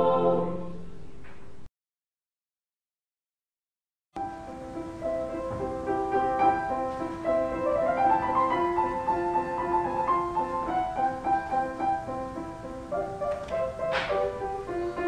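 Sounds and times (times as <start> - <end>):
instrumental piano music: 4.2 - 15.0.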